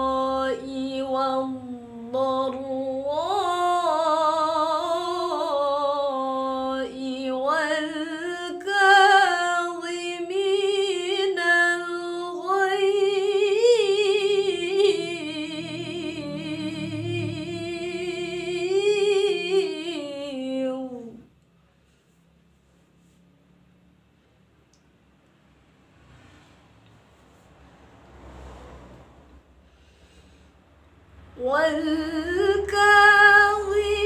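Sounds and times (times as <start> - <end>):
woman reciting melodically: 0.0 - 21.3, 31.3 - 34.0.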